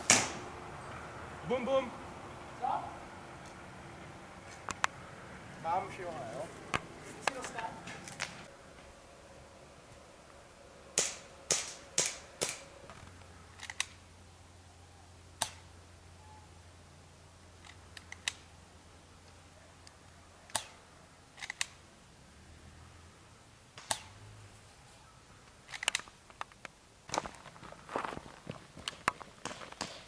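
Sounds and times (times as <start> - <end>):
airsoft gun shots: 0.0 - 0.4, 11.0 - 12.7, 23.8 - 24.2.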